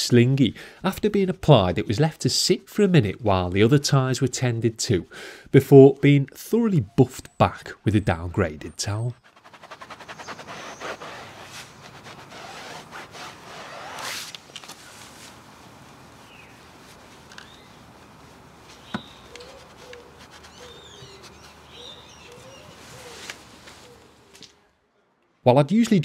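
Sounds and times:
birds chirping: 6.6 - 12.6, 14.8 - 24.4
towel rubbing on tyre: 9.1 - 24.2.

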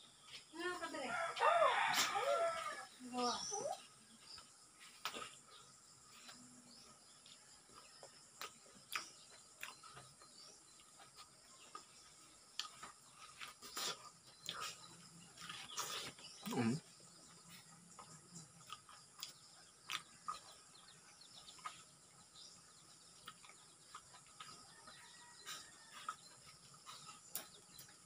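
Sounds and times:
biting and chewing soft fruit: 1.2 - 28.0
wet mouth clicks and smacks: 18.6 - 20.4.

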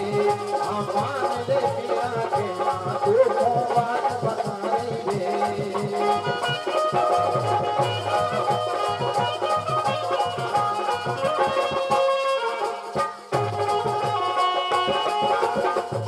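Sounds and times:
harmonium melody: 0.0 - 16.0
percussion beat: 0.0 - 16.0.

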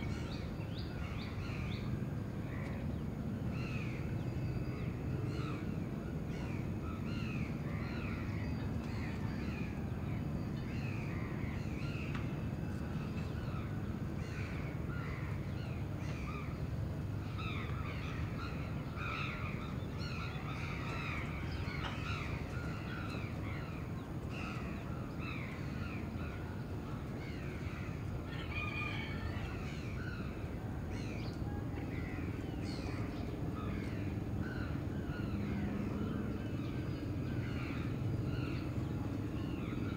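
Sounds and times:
low rumble of city noise: 0.0 - 39.9.

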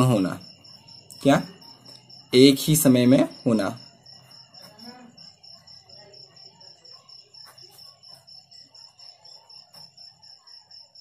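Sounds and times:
cricket chirping: 0.0 - 11.0
pen writing on paper: 7.3 - 10.0.

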